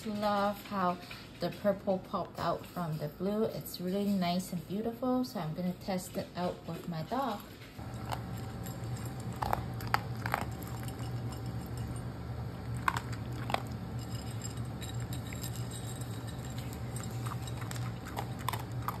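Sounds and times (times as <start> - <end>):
dog chewing with clicks: 6.7 - 19.0
steady low hum: 7.7 - 19.0.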